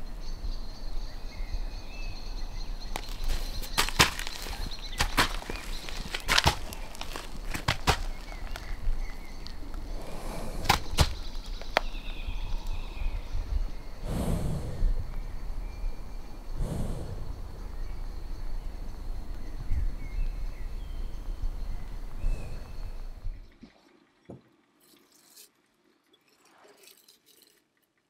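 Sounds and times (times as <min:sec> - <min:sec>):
horse snorting breaths: 0:03.2 - 0:11.6, 0:14.0 - 0:15.2, 0:16.5 - 0:17.8, 0:22.2 - 0:23.2
faint bird chirps: 0:11.1 - 0:23.6.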